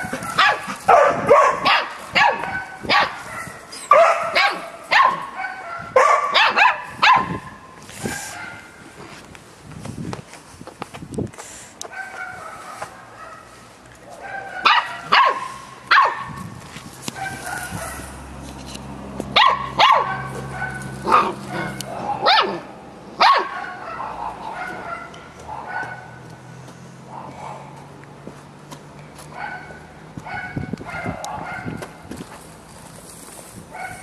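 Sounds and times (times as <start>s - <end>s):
puppy barking: 0.0s - 8.7s, 11.9s - 16.4s, 17.1s - 18.2s, 19.3s - 26.2s, 27.1s - 27.8s, 29.3s - 31.8s, 33.7s - 34.0s.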